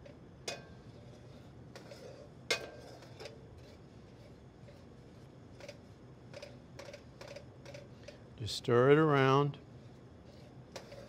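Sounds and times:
metal spoon scraping a pan: 0.5s - 8.3s, 9.8s - 11.0s.

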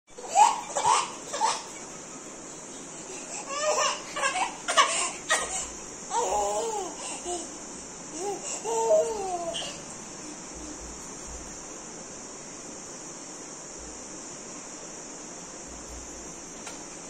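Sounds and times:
baby babbling and squealing: 8.2s - 9.8s.

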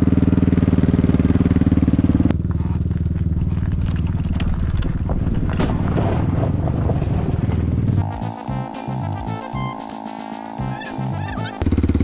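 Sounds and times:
quad engine idling: 0.0s - 4.7s, 7.6s - 12.0s
dirtbike tyres rumbling on gravel: 1.7s - 12.0s.

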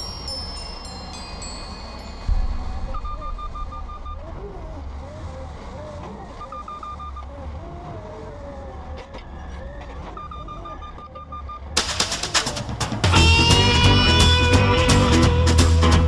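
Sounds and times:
rapid high warning beeps: 0.0s - 5.0s, 6.2s - 7.3s, 10.0s - 12.8s
forklift engine rumbling: 0.0s - 16.0s.

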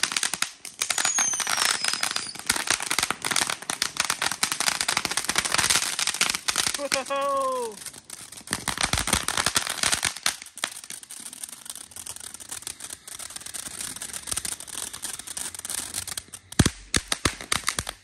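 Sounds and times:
firework crackling and hissing: 0.0s - 18.0s
sharp firework pop: 16.5s - 18.0s.

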